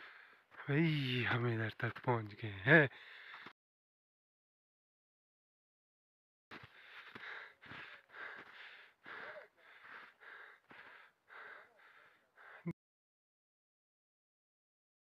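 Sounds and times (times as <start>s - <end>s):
footsteps crunching in snow: 6.5s - 8.7s.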